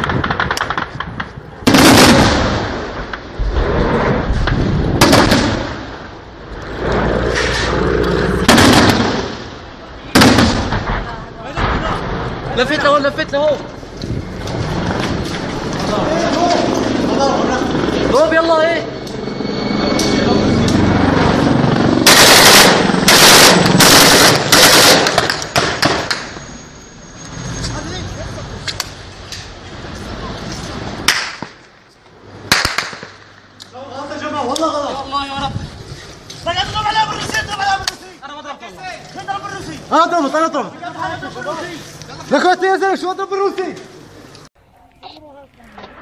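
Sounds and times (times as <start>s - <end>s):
low rumble: 2.2s - 24.5s
gunshots with echo: 8.5s - 9.4s, 22.0s - 26.1s
helicopter engine and rotor drone: 13.7s - 24.2s
automatic gunfire bursts: 22.0s - 25.7s
single gunshot cracks: 31.1s - 31.6s, 32.5s - 33.2s.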